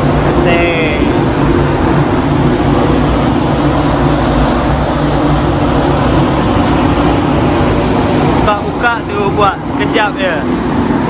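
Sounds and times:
high hiss: 0.0s - 5.6s
ventilation fans roaring: 0.0s - 11.0s.

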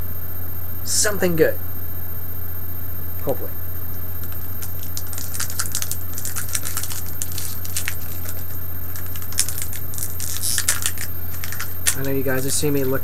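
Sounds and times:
low electrical hum: 0.0s - 13.0s
foil wrapper crinkling: 4.2s - 13.0s.

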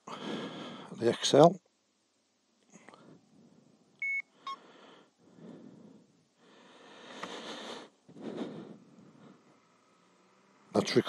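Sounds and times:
camera beeps: 4.0s - 4.6s.

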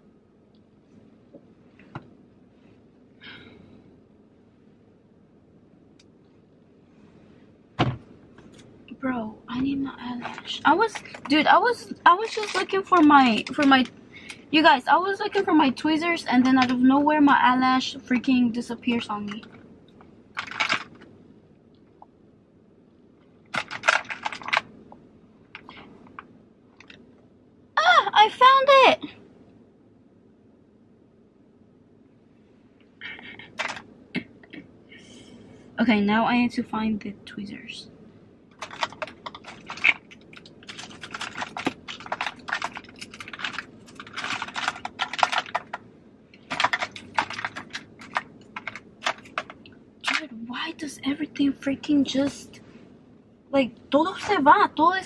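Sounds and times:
makeup items clicking and rattling: 10.1s - 13.9s, 19.1s - 19.6s, 20.4s - 21.0s, 23.5s - 24.7s, 33.5s - 33.9s, 38.6s - 45.8s, 46.4s - 50.3s
plastic cases clattering: 12.1s - 13.9s, 20.4s - 21.1s, 23.5s - 24.7s, 33.5s - 33.9s, 38.6s - 45.8s, 46.4s - 50.2s.

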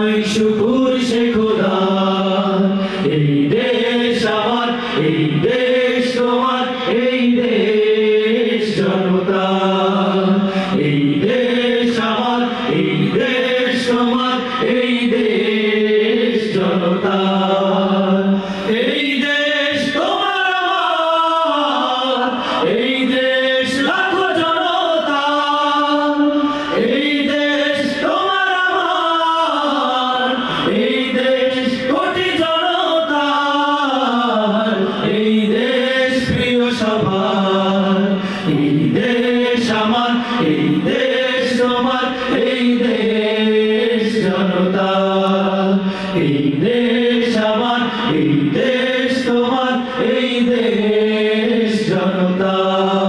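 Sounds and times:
male vocal group singing: 0.0s - 53.0s.

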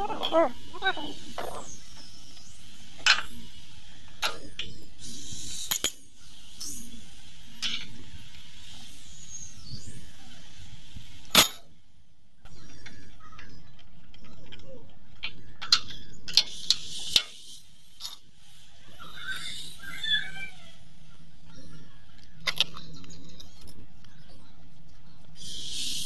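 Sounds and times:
steady hiss: 0.0s - 12.2s, 15.9s - 21.4s, 25.3s - 26.0s.

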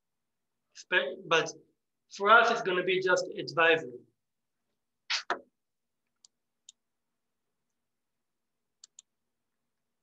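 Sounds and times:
faint computer clicks: 8.8s - 9.1s.

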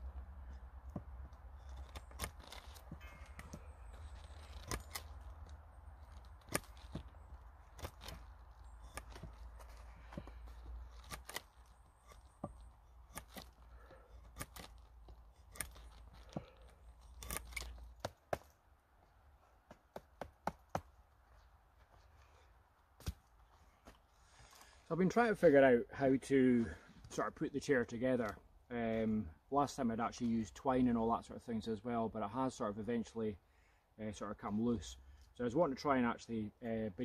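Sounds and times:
drawknife shaving wood: 0.4s - 18.5s.

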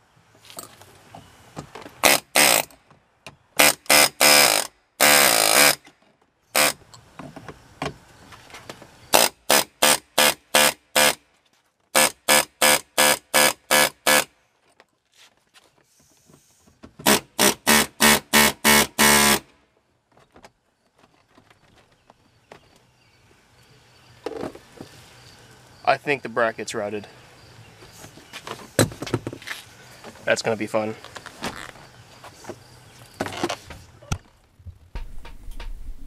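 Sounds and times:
pneumatic air hammer bursts: 2.0s - 2.8s, 3.6s - 5.9s, 6.5s - 6.8s, 9.1s - 11.2s, 11.9s - 14.3s, 15.9s - 19.5s.

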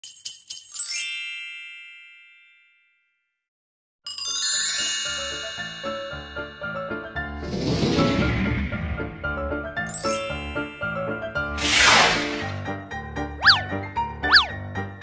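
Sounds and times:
jingly music tune: 4.1s - 7.1s, 9.9s - 11.2s.

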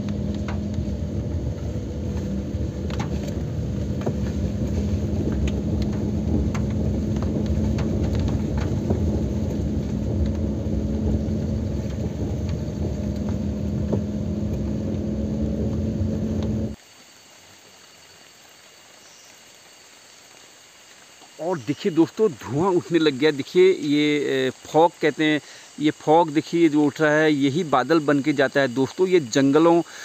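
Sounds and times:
car engine and tyre rumble: 0.0s - 16.8s
constant low hum: 0.0s - 16.8s.

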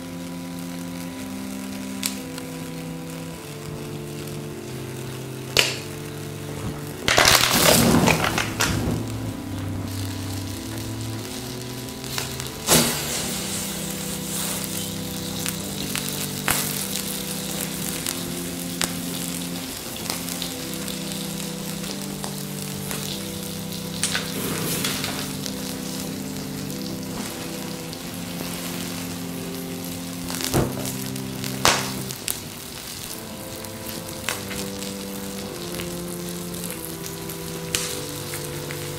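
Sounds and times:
burning plastic sizzling and crackling: 0.0s - 38.9s
slow background music: 0.0s - 38.9s
sharp pops: 5.5s - 32.4s.

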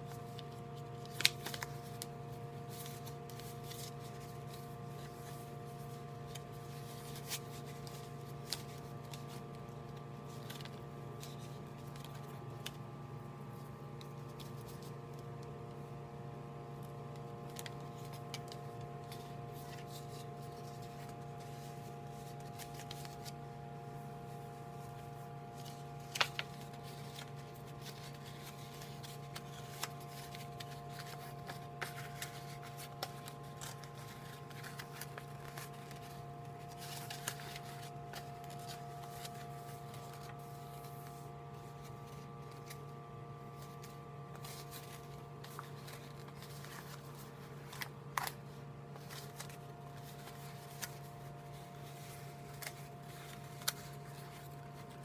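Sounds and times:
paper crackles: 0.0s - 55.0s
paper rustling and crinkling: 0.0s - 55.0s
steady electrical hum: 0.0s - 55.0s.

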